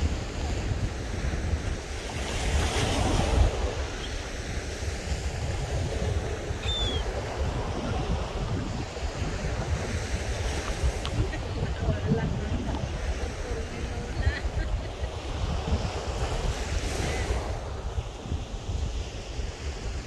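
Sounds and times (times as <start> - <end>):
surf breaking on beach: 0.0 - 20.0
wind rumbling on microphone: 0.0 - 20.0
high bird call: 6.6 - 7.1.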